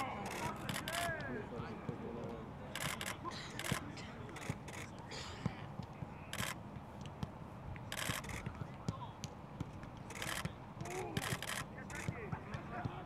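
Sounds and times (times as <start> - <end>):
faint voices: 0.0 - 6.6, 10.1 - 13.0
camera shutters firing: 0.3 - 1.0, 7.9 - 8.4, 10.1 - 10.5, 11.2 - 12.1
footballs being kicked: 12.0 - 13.0.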